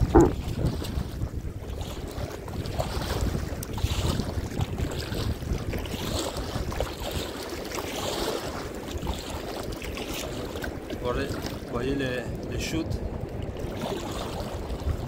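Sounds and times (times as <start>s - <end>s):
wind buffeting microphone: 0.0s - 7.4s, 12.3s - 15.0s
water lapping against kayak: 0.0s - 15.0s.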